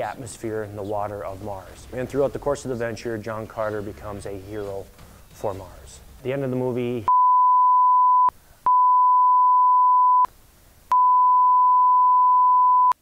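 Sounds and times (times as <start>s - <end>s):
speech: 0.0s - 7.1s
censor bleep tone: 7.1s - 10.3s, 10.9s - 13.0s.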